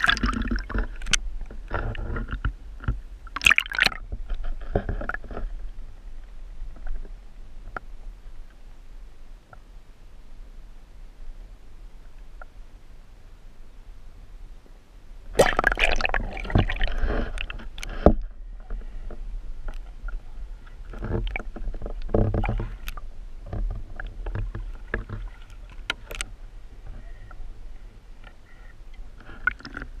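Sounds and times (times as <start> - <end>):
muffled water sloshing: 0.0 - 8.7, 15.3 - 30.0
steady low rumble: 5.4 - 29.3.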